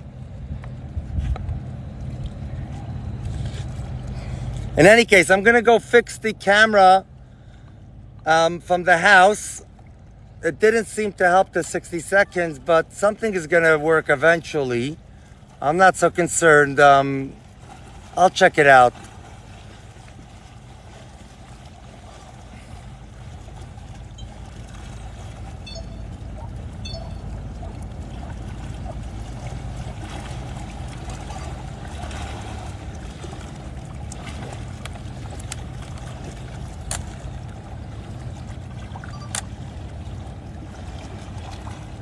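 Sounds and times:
steady low rumble: 0:00.0 - 0:42.0
small waves lapping on rocks: 0:10.5 - 0:26.7, 0:27.4 - 0:42.0.

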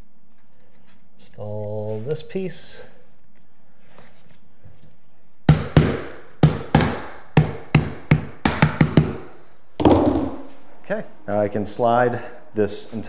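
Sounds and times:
hammer tapping vinyl plank: 0:05.5 - 0:10.4.

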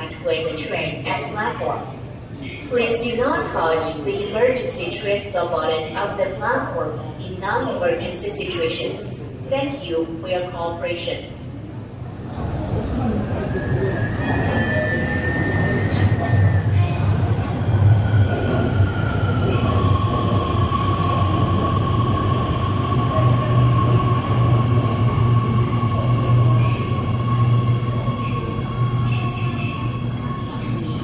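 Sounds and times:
train high whine: 0:11.3 - 0:31.0
train low rumble: 0:11.3 - 0:31.0.

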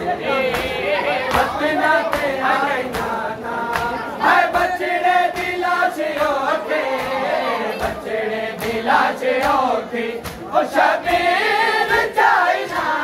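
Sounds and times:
men chanting in unison: 0:00.0 - 0:13.0
hands slapping chests: 0:09.4 - 0:10.5.

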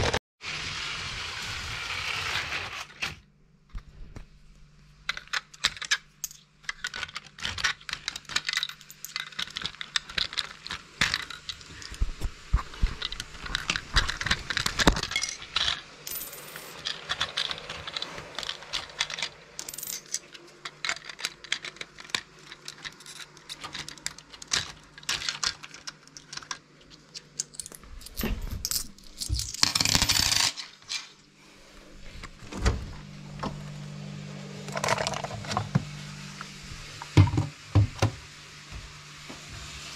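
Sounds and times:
coins and plastic parts clinking: 0:05.0 - 0:12.1, 0:12.8 - 0:31.2, 0:34.7 - 0:35.8.

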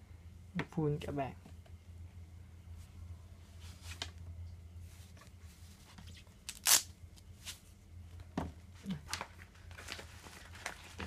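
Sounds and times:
faint low hum: 0:00.0 - 0:11.0
gloves rustling and scuffing: 0:07.2 - 0:07.8.

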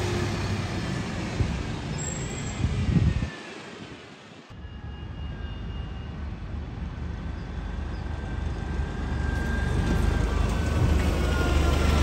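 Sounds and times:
bus engine rumbling: 0:05.6 - 0:12.0.

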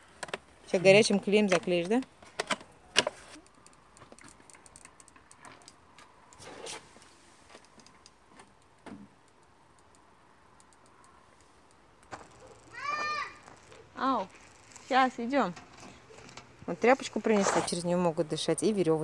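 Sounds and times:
handling noises: 0:00.0 - 0:09.4, 0:10.8 - 0:17.9
scrape: 0:06.4 - 0:07.4, 0:17.2 - 0:17.8.

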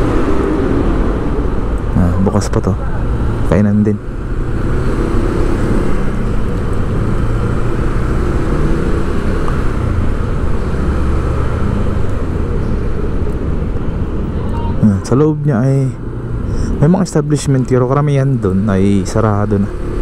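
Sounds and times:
wind rumble on microphone: 0:00.0 - 0:14.8.

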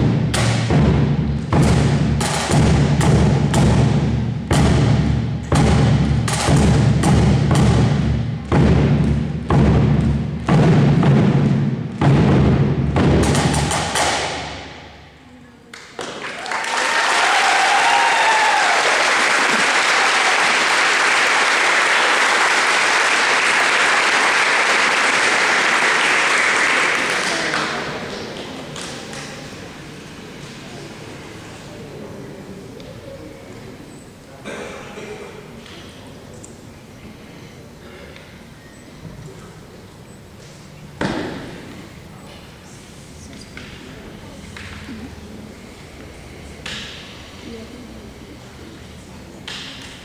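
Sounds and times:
bass and snare drums: 0:00.0 - 0:14.9
audience clapping: 0:15.7 - 0:29.5
audience cheering: 0:16.1 - 0:27.9.

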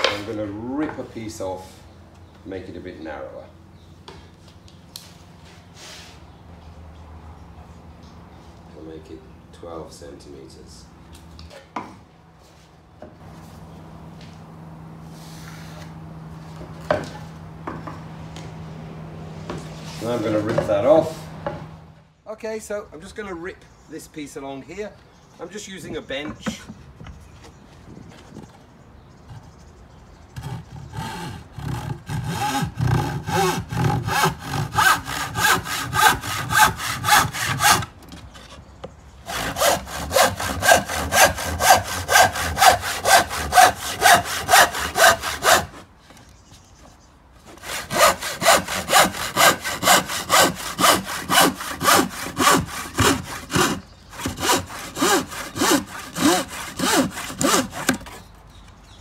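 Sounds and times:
handsaw cutting wood: 0:30.4 - 0:38.0, 0:39.2 - 0:45.9, 0:47.5 - 0:58.3.

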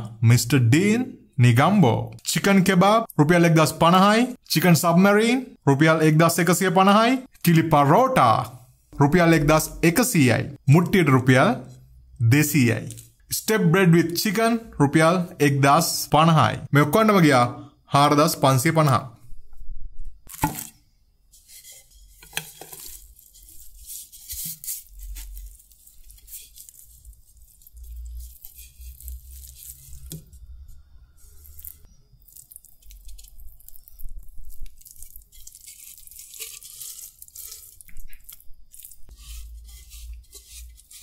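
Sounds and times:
paper wrapping crinkling and tearing: 0:21.4 - 0:30.5, 0:31.2 - 0:41.0.

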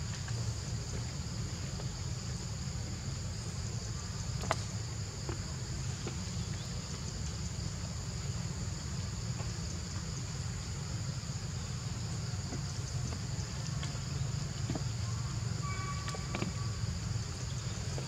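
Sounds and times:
low steady rumble: 0:00.0 - 0:18.0
high-pitched insect chorus: 0:00.2 - 0:18.0.

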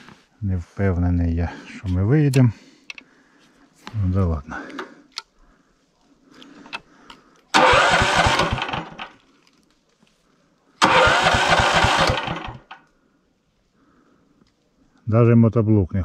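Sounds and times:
small engine cranking: 0:07.5 - 0:09.2, 0:10.8 - 0:12.8.

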